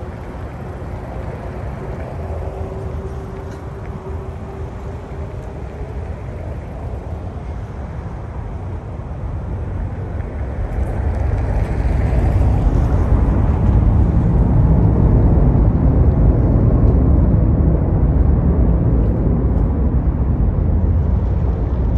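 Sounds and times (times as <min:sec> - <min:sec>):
jet engine roar: 0:00.0 - 0:21.9.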